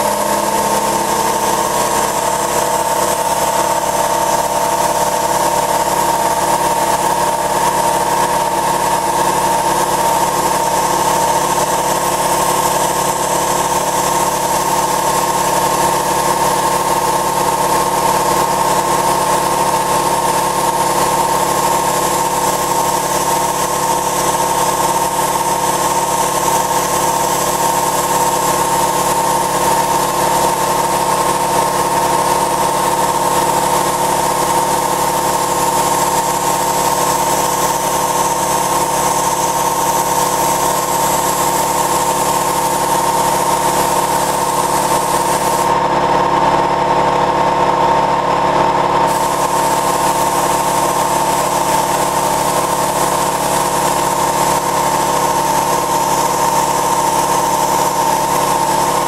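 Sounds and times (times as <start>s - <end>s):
air compressor humming: 0.0s - 59.0s
spray gun hissing: 33.9s - 45.8s, 49.1s - 59.0s.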